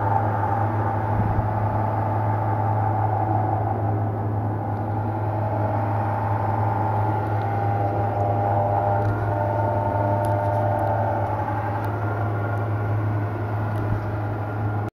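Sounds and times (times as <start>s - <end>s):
machine hum with whirring tone: 0.0s - 14.9s.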